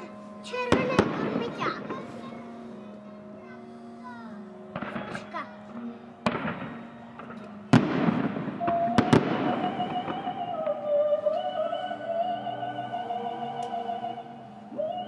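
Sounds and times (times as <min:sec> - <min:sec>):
music with held melody: 0:00.0 - 0:15.0
firework crackling: 0:00.6 - 0:02.4, 0:04.7 - 0:11.3
firework bangs: 0:00.7 - 0:02.0, 0:04.7 - 0:05.4, 0:06.2 - 0:11.1.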